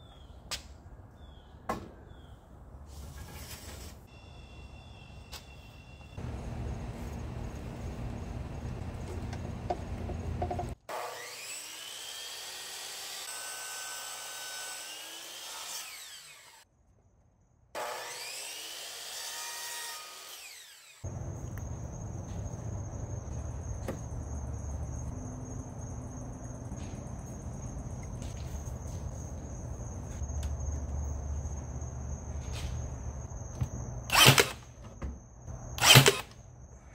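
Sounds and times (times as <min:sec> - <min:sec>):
saw blade cutting wood: 0:10.9 - 0:16.6, 0:17.8 - 0:21.0, 0:35.8 - 0:36.3
miter saw motor whining: 0:34.1 - 0:34.6, 0:35.8 - 0:36.4.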